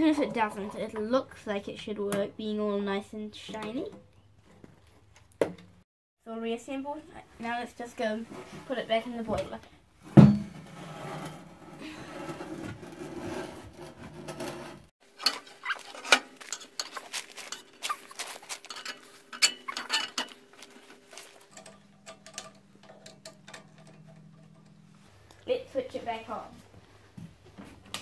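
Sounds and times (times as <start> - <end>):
metal parts clinking and rattling: 15.1 - 24.8
low steady hum: 17.3 - 26.9.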